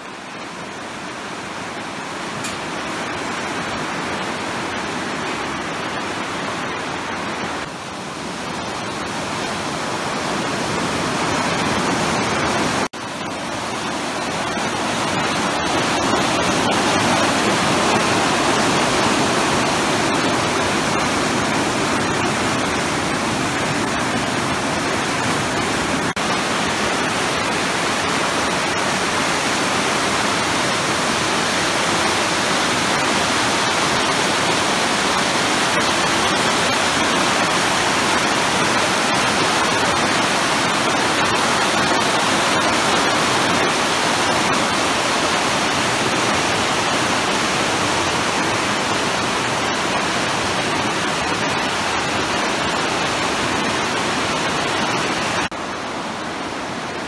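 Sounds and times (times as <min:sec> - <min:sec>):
river rushing over rocks: 0:00.0 - 0:57.0.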